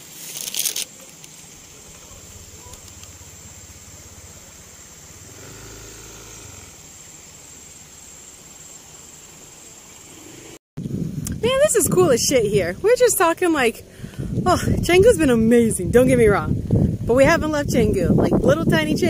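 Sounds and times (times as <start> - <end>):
distant vehicle engine: 1.6 - 10.6.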